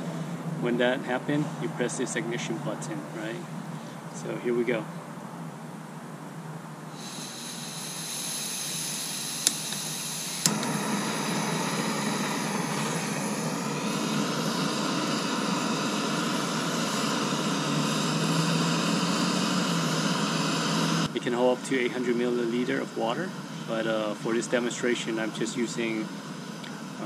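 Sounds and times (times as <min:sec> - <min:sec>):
gas hissing from stove: 0:06.8 - 0:27.0
burner flame rushing: 0:06.9 - 0:27.0
igniter clicks: 0:07.6 - 0:13.3.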